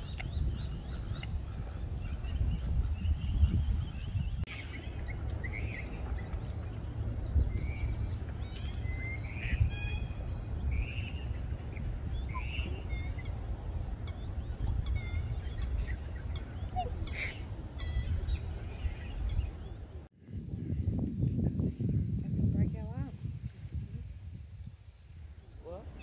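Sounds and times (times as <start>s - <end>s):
steady low rumble: 0.0s - 26.0s
waterfowl honking: 4.6s - 19.6s
bird chirps and clicks: 8.2s - 9.4s.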